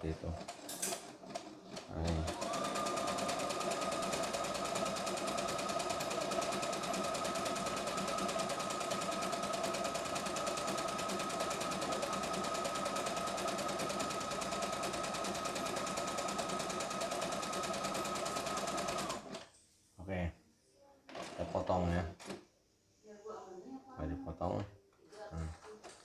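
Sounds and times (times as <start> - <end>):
sewing machine needle clatter: 0.4 - 19.4.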